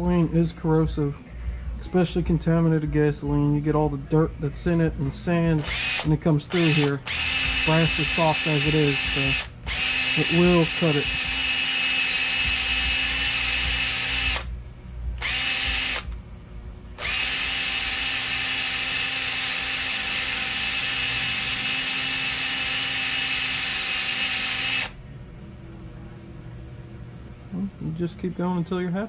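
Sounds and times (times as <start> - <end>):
cordless drill motor whine: 5.6 - 14.5, 15.2 - 16.2, 17.0 - 25.0.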